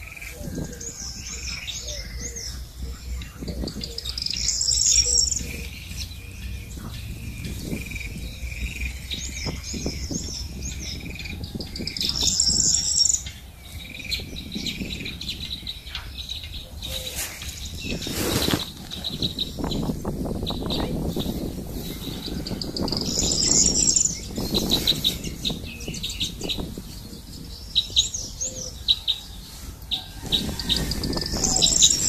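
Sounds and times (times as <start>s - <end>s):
small birds chirping: 0.0s - 32.0s
brief rustling: 17.0s - 19.1s.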